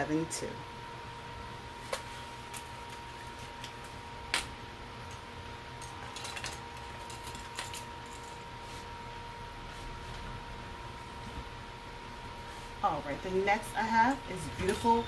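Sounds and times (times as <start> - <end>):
faint hum: 0.0 - 15.0.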